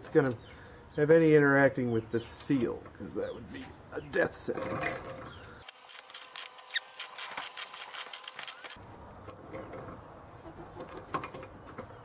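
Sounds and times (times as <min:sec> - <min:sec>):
pliers clicking and scraping metal: 0:05.6 - 0:08.8.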